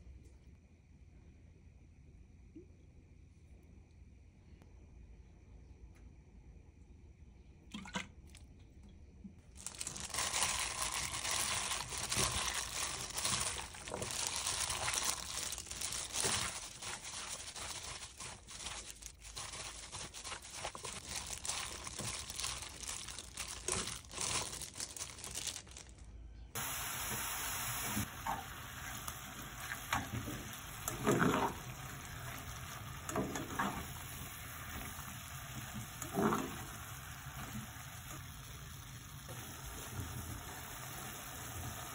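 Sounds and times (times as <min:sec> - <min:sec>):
hands kneading meat in bowl: 0:09.6 - 0:25.6
spatula stirring in frying pan: 0:11.5 - 0:22.0.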